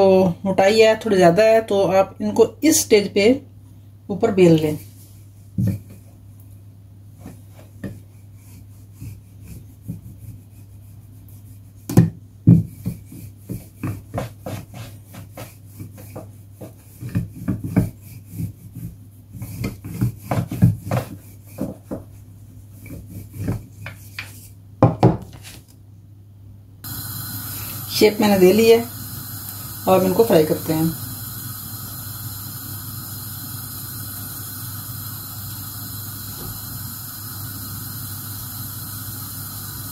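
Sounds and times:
rolling pin rubbing over dough: 7.1 - 24.6.

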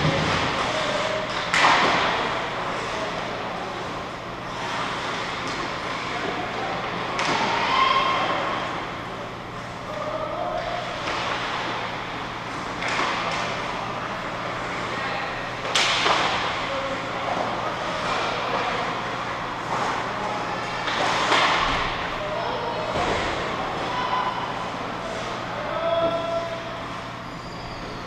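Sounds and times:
hockey sticks and puck clacking: 0.0 - 3.9, 4.5 - 7.8, 10.6 - 13.8, 15.6 - 16.6, 17.3 - 22.0.

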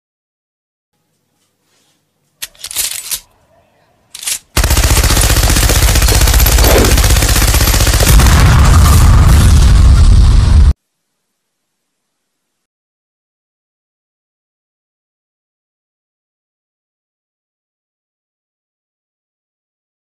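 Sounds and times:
automatic gunfire: 4.2 - 9.0
deep explosion: 8.0 - 10.8.

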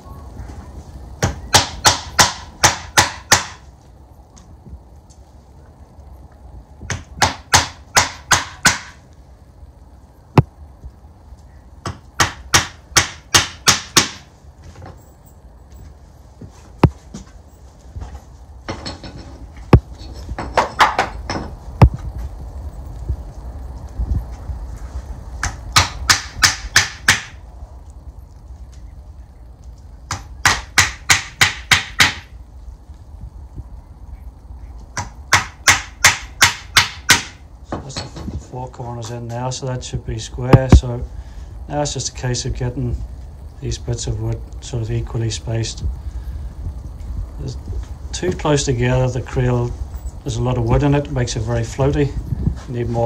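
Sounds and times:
hammer driving nails into wood: 1.2 - 3.6, 6.9 - 9.0, 11.8 - 14.3, 25.4 - 27.4, 30.1 - 32.3, 35.0 - 37.4.

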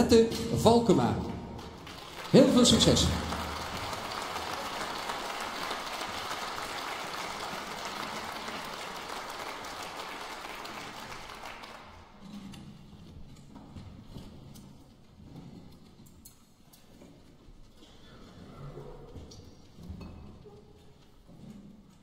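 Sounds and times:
audience applauding: 1.6 - 12.2.

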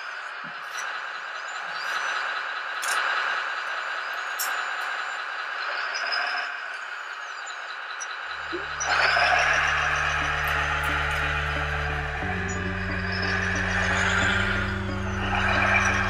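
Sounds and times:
model wheel loader running: 6.9 - 16.0
music with low steady tone: 8.4 - 16.0.

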